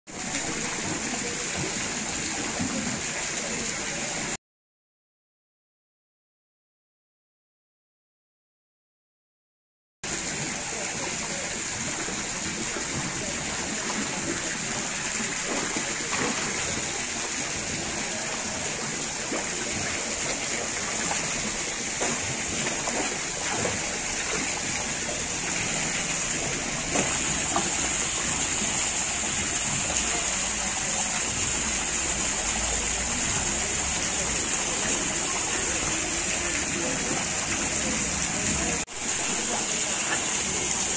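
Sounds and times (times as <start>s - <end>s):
water rushing in fish tank: 0.1s - 4.4s, 10.0s - 40.9s
small water splashes: 10.2s - 40.9s.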